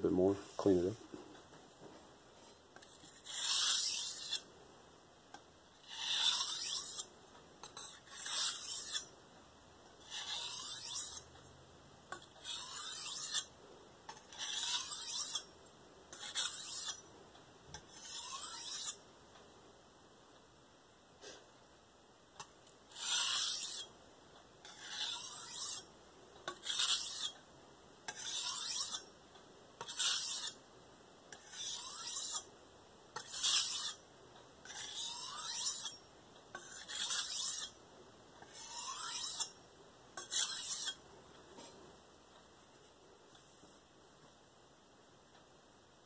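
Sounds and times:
knife rasping on whetstone: 2.4 - 4.4, 5.8 - 9.1, 10.1 - 11.3, 12.4 - 13.5, 14.1 - 15.5, 16.1 - 17.0, 17.8 - 19.0, 22.9 - 23.9, 24.6 - 25.9, 26.5 - 27.4, 28.1 - 29.0, 29.8 - 30.6, 31.3 - 32.5, 33.2 - 34.0, 34.6 - 36.0, 36.6 - 37.7, 38.4 - 39.5, 40.2 - 41.0.

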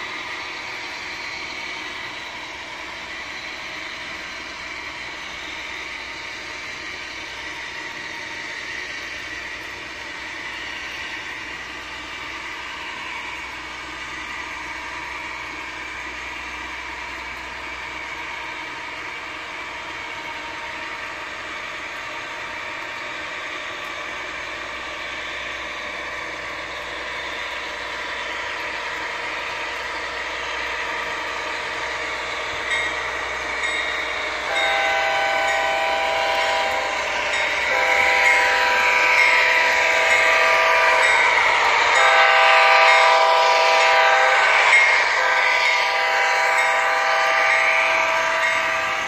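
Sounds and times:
model train rumbling on track: 0.0 - 49.0
model locomotive horn blasts: 33.6 - 49.0.

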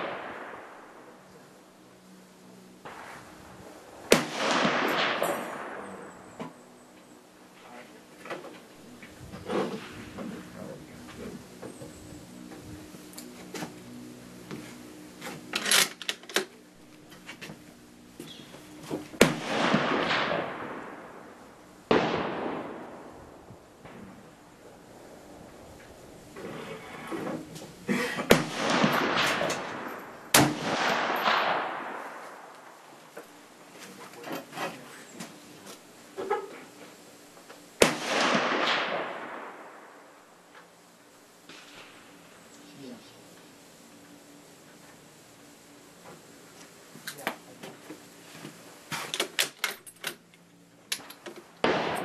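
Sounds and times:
gunshots with rolling echo: 0.0 - 1.4, 2.8 - 6.4, 19.2 - 24.5, 28.3 - 32.8, 37.8 - 40.3, 51.6 - 52.0.

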